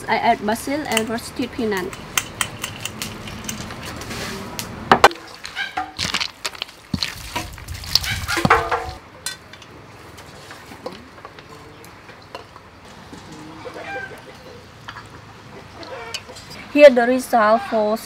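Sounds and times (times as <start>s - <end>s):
salad leaves rustling: 3.0s - 9.0s.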